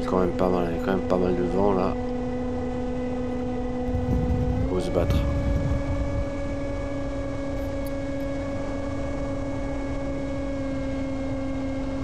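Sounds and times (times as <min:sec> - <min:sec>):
electric motor propeller whine: 0:00.0 - 0:12.0
rumbling wind noise: 0:02.0 - 0:09.1.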